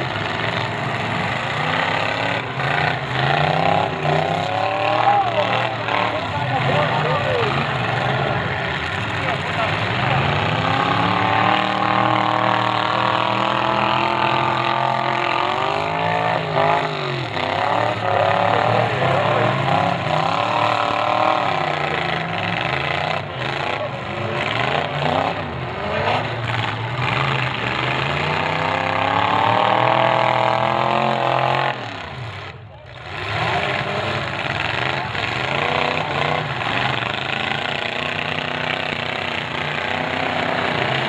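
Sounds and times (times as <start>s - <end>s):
car engines revving: 0.0s - 41.0s.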